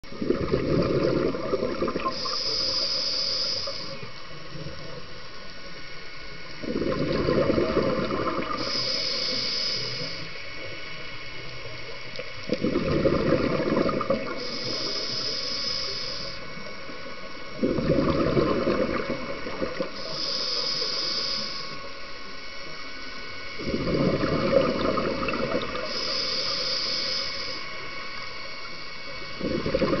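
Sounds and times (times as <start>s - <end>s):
bubbling rush on exhalation: 0.1s - 4.0s, 6.6s - 10.2s, 12.5s - 15.3s, 17.6s - 20.5s, 23.6s - 26.4s, 29.3s - 30.0s
regulator hiss on inhalation: 2.0s - 4.2s, 8.3s - 11.0s, 14.2s - 16.8s, 19.7s - 24.6s, 25.5s - 28.3s.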